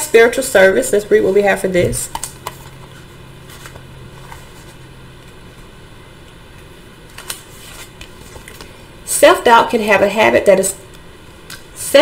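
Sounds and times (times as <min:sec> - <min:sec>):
low steady hum: 0:00.0 - 0:12.0
paper pages rustling: 0:02.1 - 0:05.7, 0:07.1 - 0:08.8.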